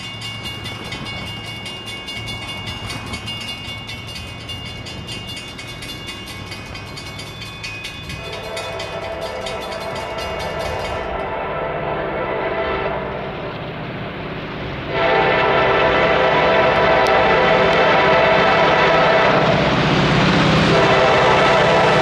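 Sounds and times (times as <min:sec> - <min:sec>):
locomotive engine rumble: 0:00.0 - 0:22.0
multi-note air horn: 0:11.0 - 0:13.4, 0:14.9 - 0:19.6, 0:20.7 - 0:22.0.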